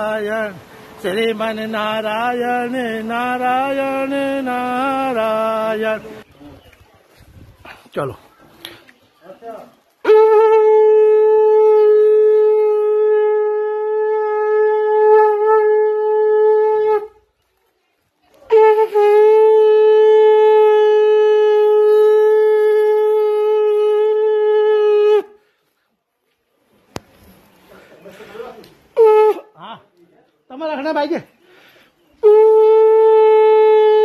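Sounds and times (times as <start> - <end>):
conch shell blown: 10.0 - 17.2, 18.5 - 25.4, 29.0 - 29.6, 32.2 - 34.0.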